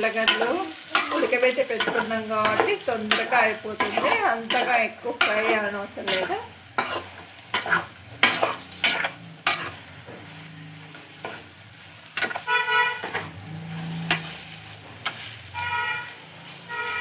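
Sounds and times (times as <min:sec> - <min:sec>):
light sizzle: 0:00.0 - 0:17.0
steel spoon scraping a pan: 0:00.0 - 0:17.0
horn toots: 0:12.3 - 0:14.1, 0:15.5 - 0:17.0.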